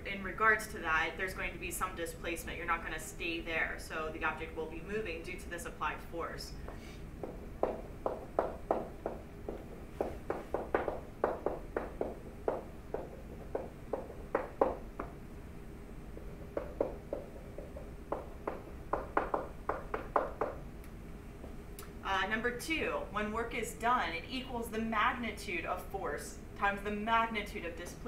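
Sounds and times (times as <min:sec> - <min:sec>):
pen tapping while writing: 0:07.2 - 0:15.2, 0:16.2 - 0:20.6.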